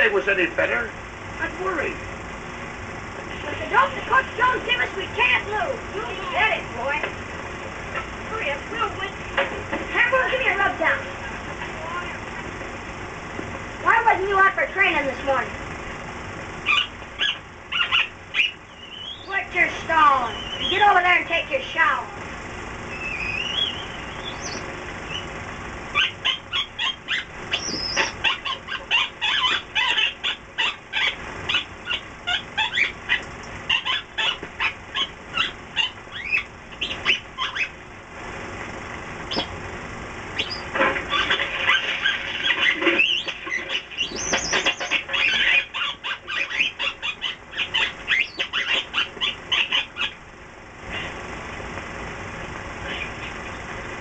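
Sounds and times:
monkey chattering and squealing: 0:16.6 - 0:19.4, 0:20.2 - 0:20.9, 0:22.9 - 0:37.8, 0:40.4 - 0:50.2, 0:52.8 - 0:53.6
small animal yelping: 0:16.6 - 0:21.0, 0:22.9 - 0:37.8, 0:40.4 - 0:50.3, 0:52.8 - 0:53.6
faint wavering whistle: 0:18.4 - 0:19.3, 0:20.2 - 0:20.8, 0:22.9 - 0:25.3.

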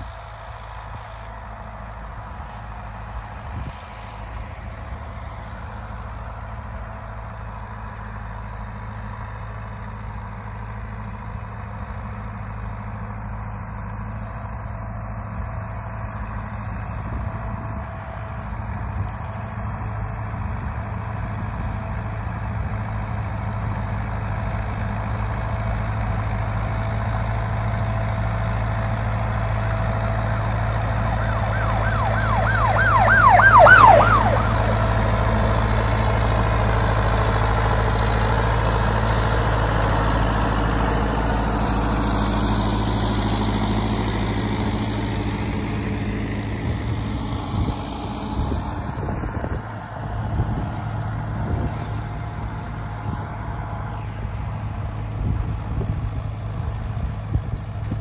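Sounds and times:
tractor diesel engine running: 0:00.0 - 0:58.0
high warbling squeal: 0:30.1 - 0:35.4.

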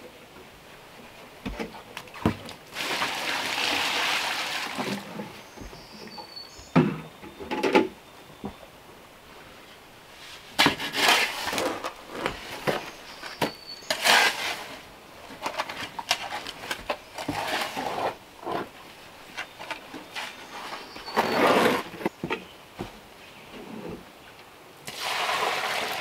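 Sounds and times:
shovel scraping through gritty mix: 0:10.2 - 0:14.9, 0:15.6 - 0:18.7, 0:19.4 - 0:22.1.

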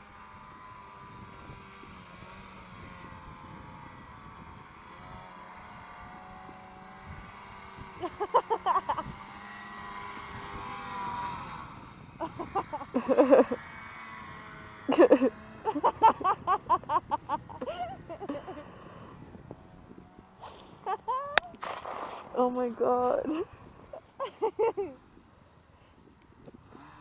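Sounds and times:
distant snowmobile engines: 0:00.0 - 0:27.0
loud close burst: 0:21.6 - 0:22.4.

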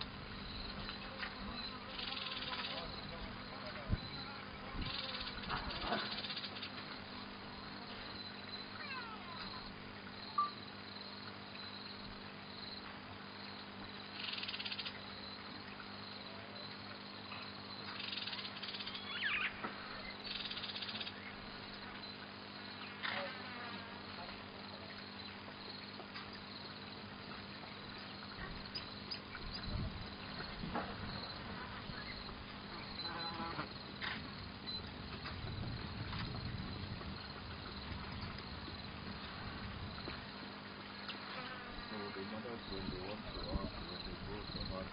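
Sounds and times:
insects buzzing: 0:00.0 - 0:44.9
bird calls: 0:17.9 - 0:21.4.

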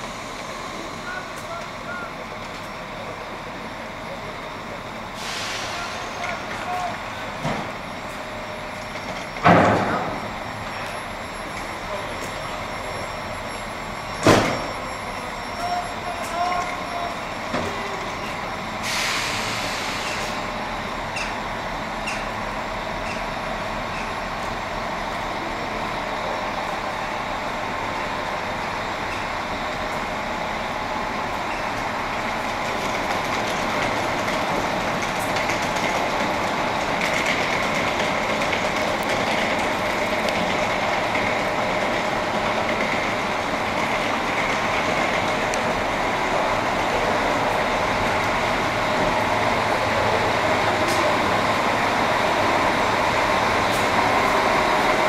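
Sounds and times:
train coaches rumbling: 0:00.0 - 0:55.0
hissing air burst: 0:05.2 - 0:06.1, 0:18.8 - 0:20.4
train coupling clunks: 0:14.2 - 0:14.9.

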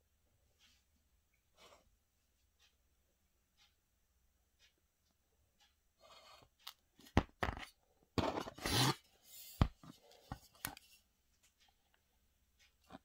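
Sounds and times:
metal scraping on cardboard: 0:08.2 - 0:09.6.

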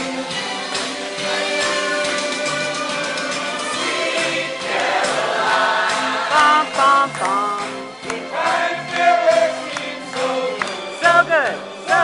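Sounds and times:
instrumental backing music: 0:00.0 - 0:12.0
men's choir singing: 0:02.4 - 0:11.0.

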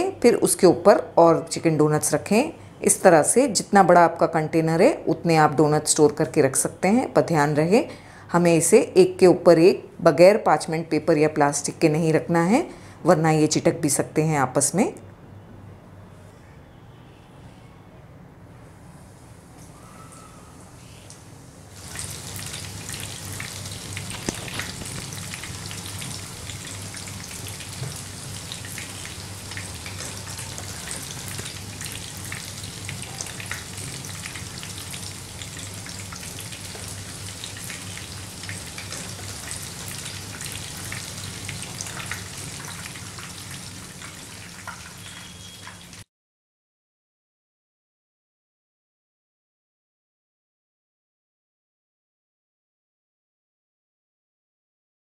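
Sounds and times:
food sizzling in hot oil: 0:21.4 - 0:46.1.

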